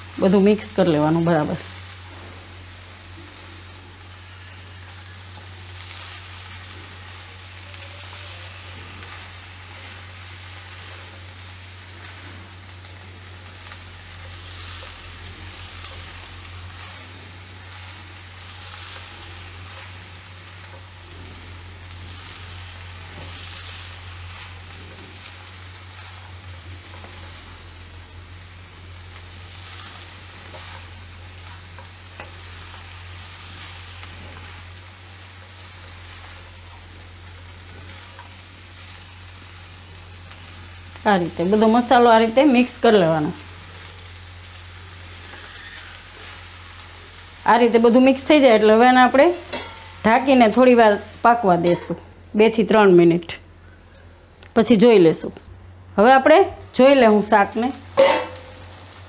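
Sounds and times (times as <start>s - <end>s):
vegetables sizzling in oil: 0.0s - 59.0s
spatula stirring in wok: 1.6s - 47.5s, 49.3s - 52.2s.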